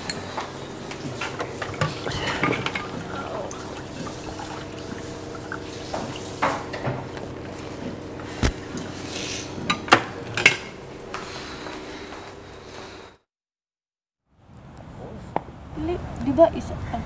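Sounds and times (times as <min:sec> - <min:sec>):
low room hum: 0:00.0 - 0:13.2
dishes clinking: 0:01.0 - 0:07.2, 0:09.6 - 0:10.8.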